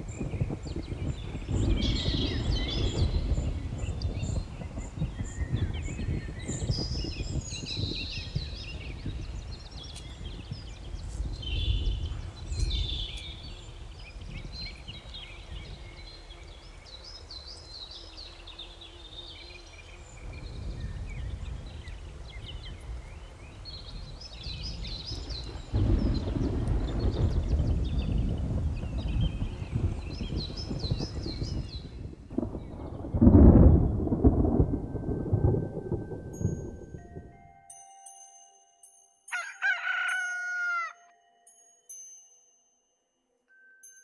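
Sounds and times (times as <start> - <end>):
small birds chirping: 0.0 - 34.8.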